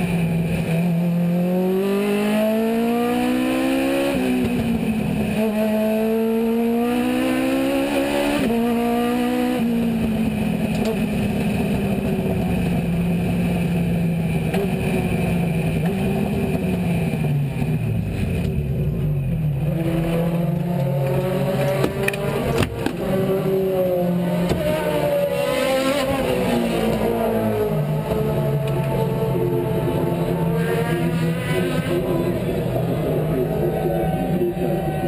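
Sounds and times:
racing car engine revving: 0.0 - 35.0.

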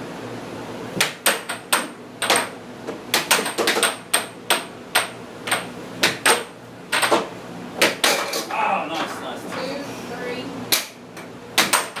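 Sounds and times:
air hockey puck clacking: 1.0 - 8.5, 10.7 - 11.0, 11.6 - 12.0.

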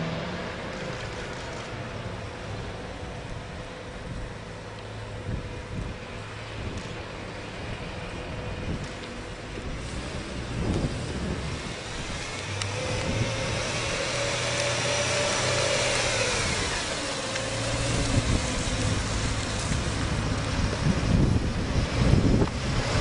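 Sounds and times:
car engine driving past: 9.8 - 23.0.

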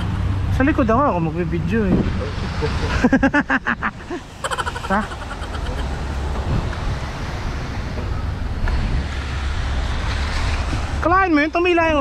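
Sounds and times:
wind buffeting microphone: 3.9 - 11.1.

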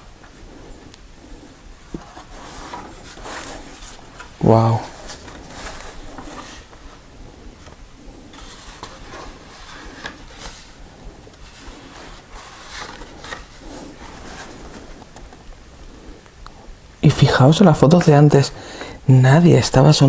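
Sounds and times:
card pages rustling and turning: 1.9 - 7.0, 7.6 - 15.4.

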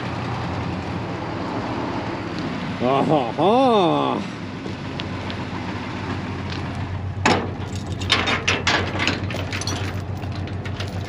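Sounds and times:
low engine hum: 0.0 - 11.0
steel chain rattling and clinking: 7.5 - 11.0.

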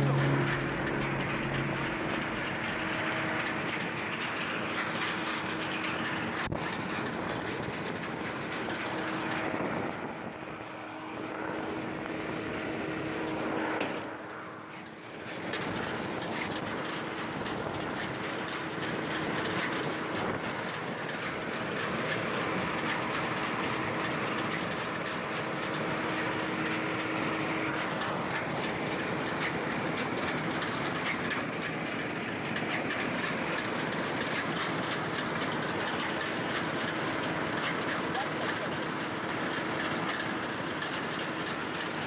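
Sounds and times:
steady hum: 0.0 - 5.7
combine harvester mechanical rattle: 0.0 - 42.0.

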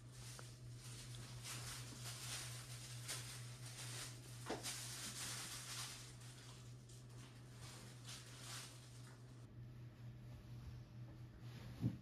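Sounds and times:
steady low hum: 0.0 - 12.0
handling rustle: 0.1 - 9.3.

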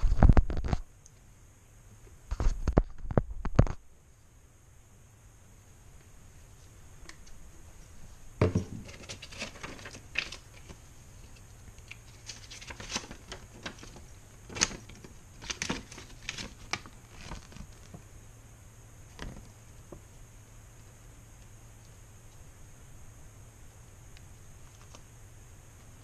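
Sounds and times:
paper leaflet rustling: 8.8 - 17.9.

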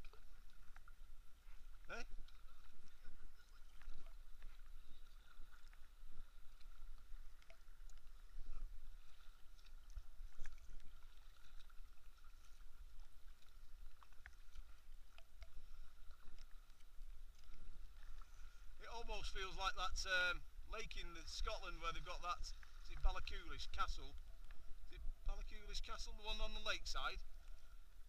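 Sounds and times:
paddle splashing in water: 0.0 - 19.6
faint steady tone: 0.0 - 28.0.

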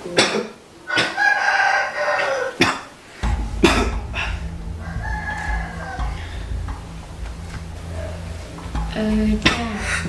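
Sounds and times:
rooster crowing: 1.2 - 2.6
low steady hum: 3.2 - 10.0.

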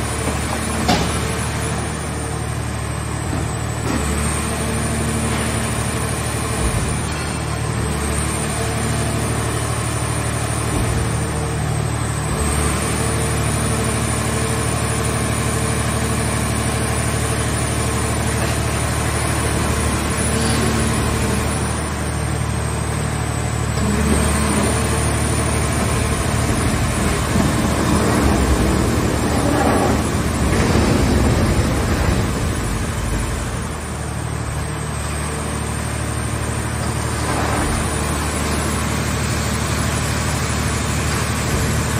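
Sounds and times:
hydraulic power unit humming: 0.0 - 41.9.

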